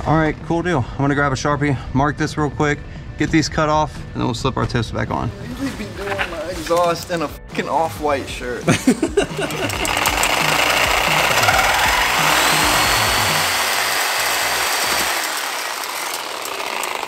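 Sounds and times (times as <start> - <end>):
power tool cutting exhaust pipe: 9.2 - 17.0.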